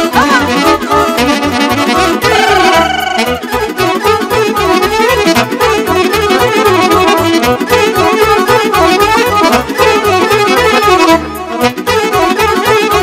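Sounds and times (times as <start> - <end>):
steady bass beat: 0.0 - 3.6
accordion: 0.0 - 13.0
horns: 0.0 - 13.0.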